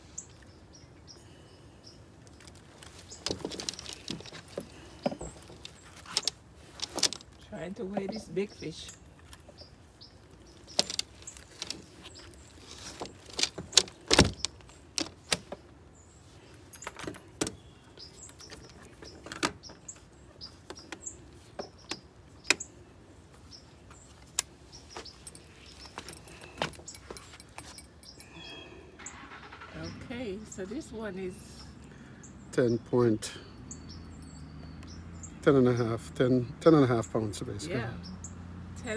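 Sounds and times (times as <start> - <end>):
clicks and rattles of net and scale: 2.3 - 8.4.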